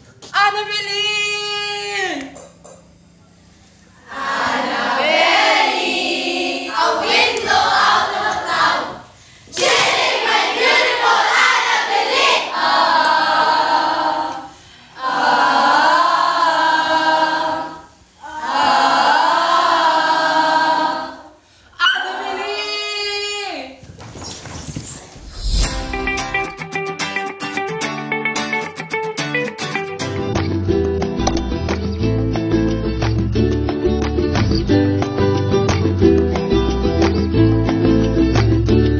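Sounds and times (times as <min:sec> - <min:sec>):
young voices singing together: 0:04.0 - 0:23.7.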